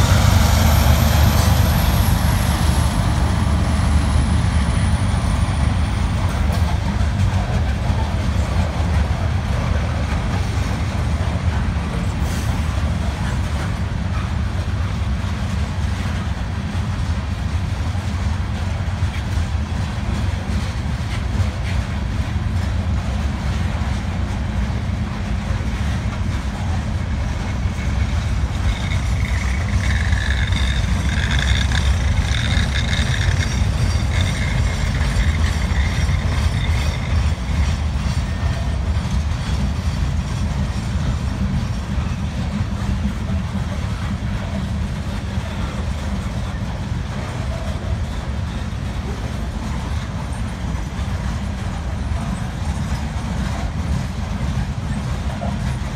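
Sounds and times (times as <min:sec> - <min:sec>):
freight train rumbling: 0:00.0 - 0:55.9
high wavering squeal: 0:27.8 - 0:37.8.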